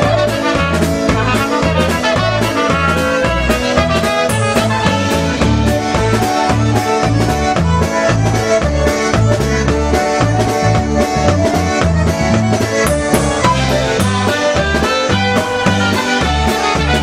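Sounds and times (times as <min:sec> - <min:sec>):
button concertina melody: 0:00.0 - 0:17.0
oom-pah bass: 0:00.0 - 0:17.0
steady drum beat: 0:00.0 - 0:17.0.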